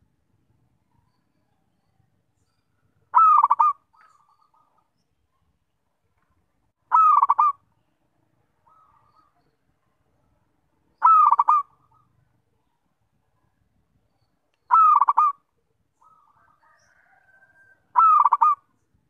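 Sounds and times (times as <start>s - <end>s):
dove cooing: 3.1s - 4.8s, 6.9s - 7.6s, 11.0s - 12.2s, 14.7s - 15.4s, 16.0s - 18.7s.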